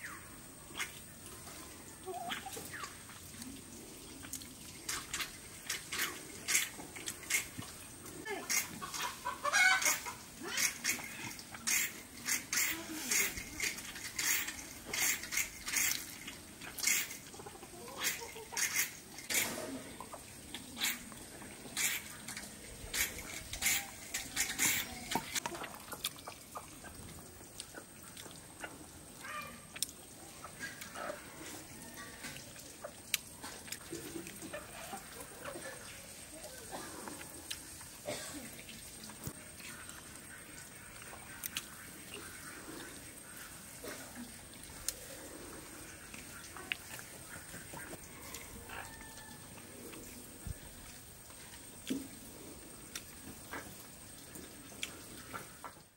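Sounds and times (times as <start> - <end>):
smacking chewing: 21.8 - 28.8, 52.8 - 55.5.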